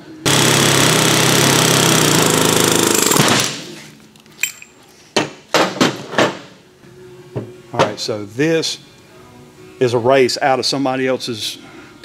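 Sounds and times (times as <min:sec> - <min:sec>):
pneumatic air hammer hammering: 0:00.2 - 0:03.8
light metal clinks: 0:04.4 - 0:04.8.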